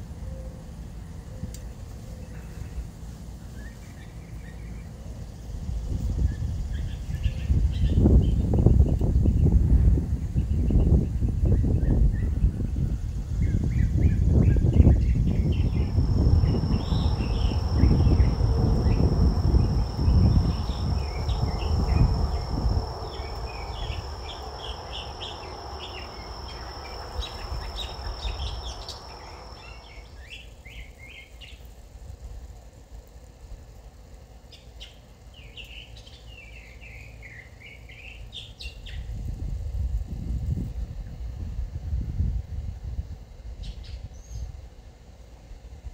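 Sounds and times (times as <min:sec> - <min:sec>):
wind rumble on microphone: 0:03.8 - 0:31.2, 0:38.0 - 0:45.9
high insect drone: 0:04.8 - 0:09.3, 0:10.9 - 0:34.5
birds chirping: 0:13.5 - 0:31.5.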